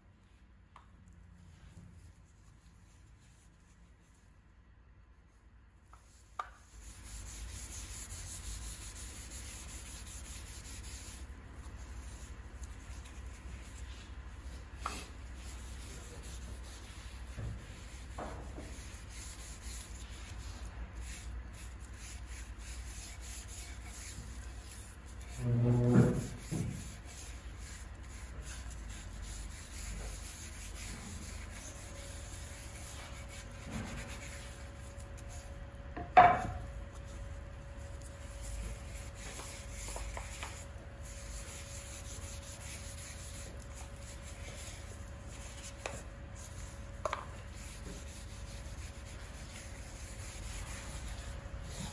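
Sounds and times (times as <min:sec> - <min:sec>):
cloth scrubbing on wood: 0:14.8 - 0:35.6, 0:36.4 - 0:51.9
small knocks on wood: 0:36.0 - 0:36.6.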